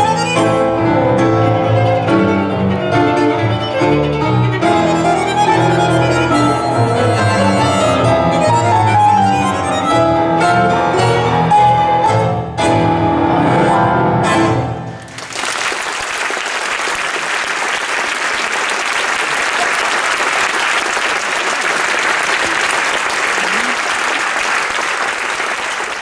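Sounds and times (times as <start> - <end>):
tango ensemble playing: 0.0 - 15.2
audience applause: 15.0 - 26.0.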